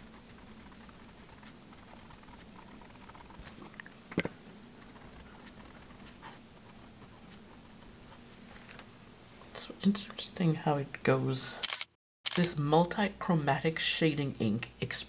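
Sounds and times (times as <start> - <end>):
pen scratching on paper: 0.0 - 3.6, 4.8 - 8.2.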